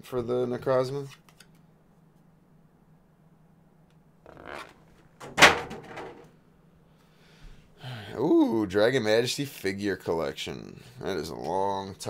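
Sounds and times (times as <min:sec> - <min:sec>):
faint steady hum: 0:00.0 - 0:12.0
sharp knock and crinkle: 0:05.2 - 0:06.3.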